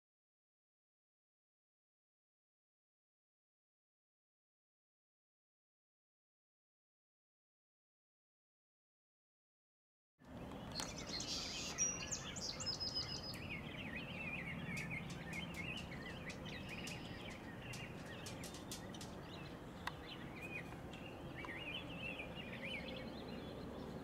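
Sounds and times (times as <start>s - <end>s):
songbirds chirping: 10.2s - 24.0s.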